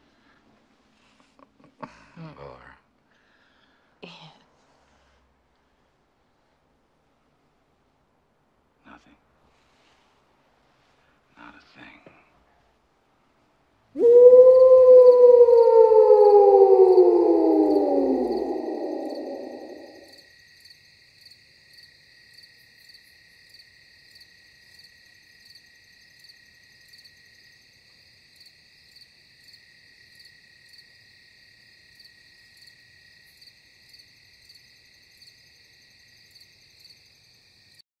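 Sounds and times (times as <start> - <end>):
crickets chirping: 14.0 - 37.8.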